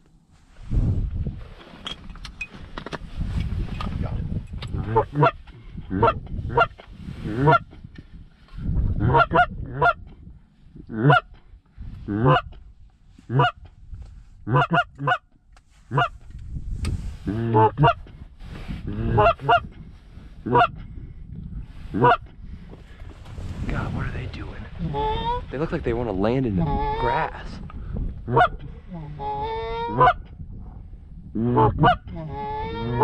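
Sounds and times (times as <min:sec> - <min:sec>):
goose honking: 0:13.3 - 0:13.6, 0:15.9 - 0:16.1, 0:22.0 - 0:22.2, 0:24.8 - 0:25.4, 0:26.5 - 0:27.3, 0:28.3 - 0:30.2, 0:31.6 - 0:33.0.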